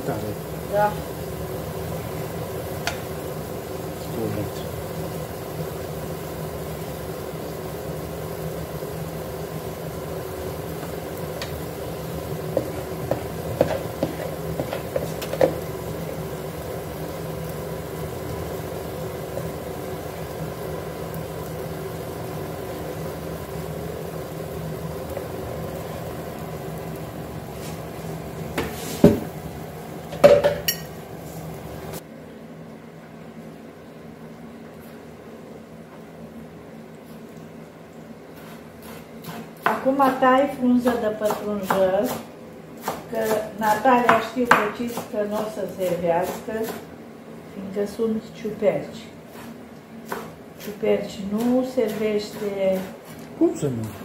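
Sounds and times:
steady hum: 0.0s - 54.0s
pots and dishes clinking: 30.1s - 31.0s.

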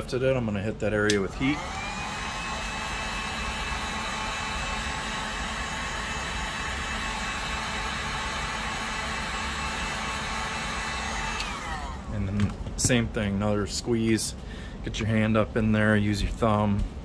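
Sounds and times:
fan high whine: 0.0s - 17.0s
heat gun blowing air: 1.1s - 12.1s.

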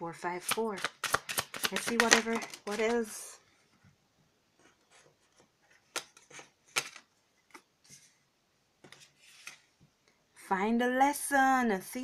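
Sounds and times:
cards sliding and rubbing: 0.6s - 3.1s, 4.6s - 8.2s, 8.9s - 9.7s.

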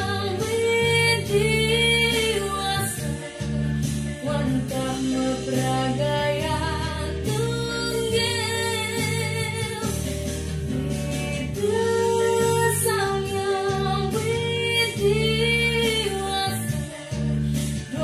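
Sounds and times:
girl singing: 0.0s - 3.4s, 10.7s - 17.3s
instrumental backing music: 0.0s - 18.0s.

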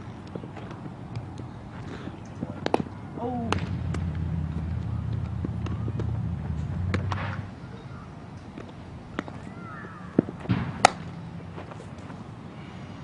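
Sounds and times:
ball smacking into glove: 2.6s - 6.2s, 6.8s - 7.5s, 10.2s - 11.8s
bat cracking baseball: 2.6s - 7.6s, 9.1s - 12.0s
low rumble: 3.3s - 7.6s.

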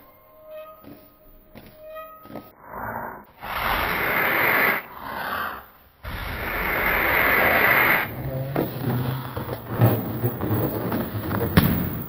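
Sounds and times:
hissing noise: 3.3s - 8.4s.

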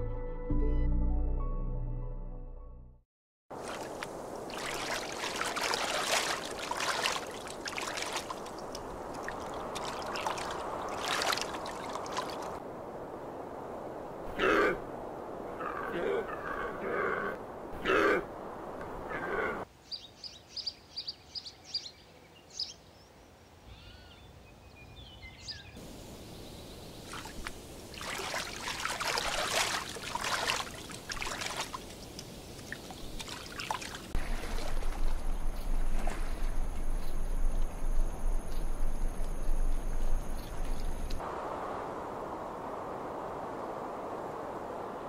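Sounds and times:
river water splashing: 3.5s - 13.0s, 25.8s - 45.0s
low hum: 34.2s - 44.1s.

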